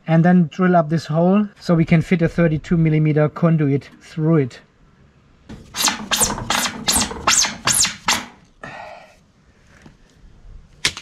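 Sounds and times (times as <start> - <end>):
hand tool scraping metal: 5.5 - 8.4.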